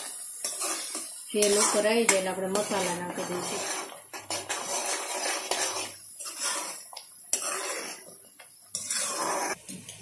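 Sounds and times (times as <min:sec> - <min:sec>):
metal spoon scraping a pan: 0:00.0 - 0:10.0.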